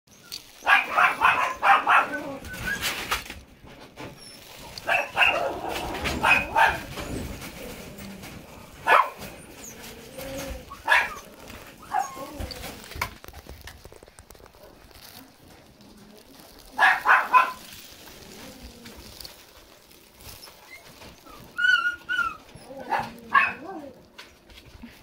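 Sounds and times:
puppy yipping and whining: 0.1s - 3.2s, 4.1s - 7.4s, 8.8s - 12.9s, 20.0s - 24.0s.

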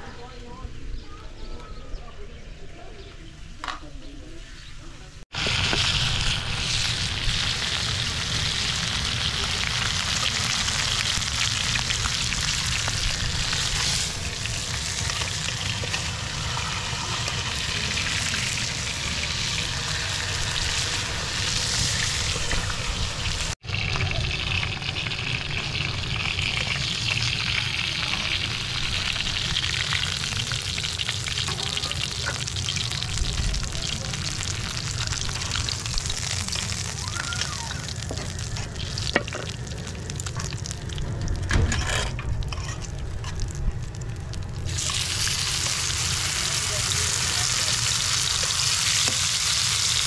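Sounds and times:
chicken sizzling in hot oil: 5.3s - 41.1s, 42.4s - 50.0s
low rumble: 32.5s - 46.4s.

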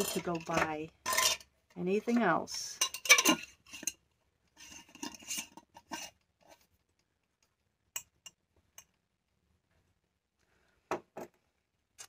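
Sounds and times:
metal scraping against glass: 0.0s - 1.5s, 2.6s - 4.0s, 4.6s - 6.2s
glass jar clinking: 2.8s - 4.0s.

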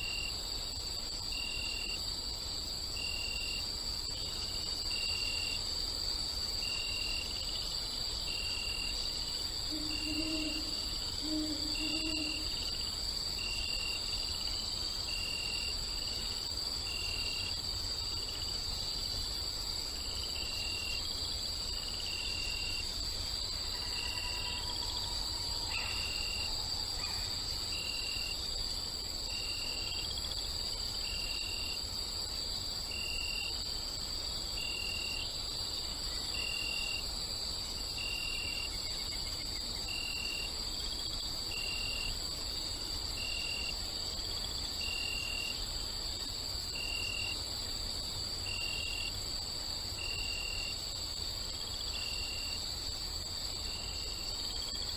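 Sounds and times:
crickets chirping: 0.0s - 54.9s
owl hooting: 9.7s - 12.5s.

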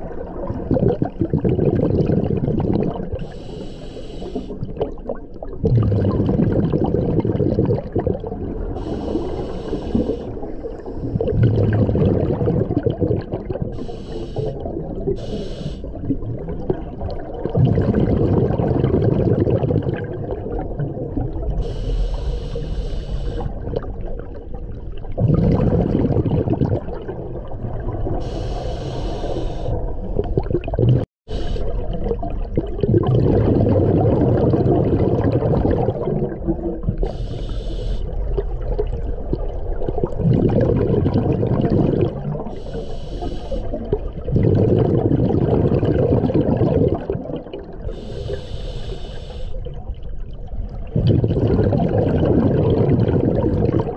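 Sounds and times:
rumble of exhaled bubbles: 0.0s - 3.6s, 4.3s - 53.9s
regulator hissing inhalation: 3.2s - 4.6s, 8.8s - 11.2s, 13.7s - 14.6s, 15.2s - 15.9s, 21.6s - 23.5s, 28.2s - 29.8s, 31.3s - 31.7s, 37.0s - 38.1s, 42.6s - 43.7s, 47.9s - 49.6s.

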